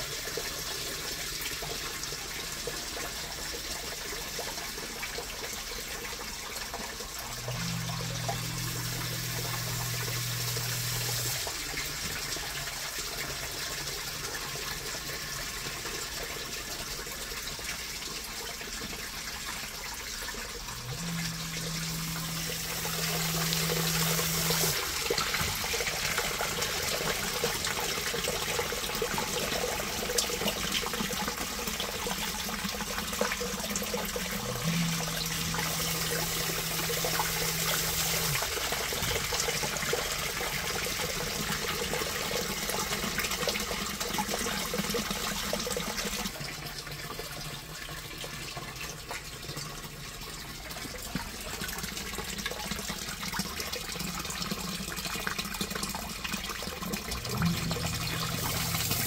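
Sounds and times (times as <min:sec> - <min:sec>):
water pouring and splashing: 0:00.0 - 0:59.0
low hum: 0:07.3 - 0:11.4, 0:20.8 - 0:24.8, 0:57.2 - 0:59.0.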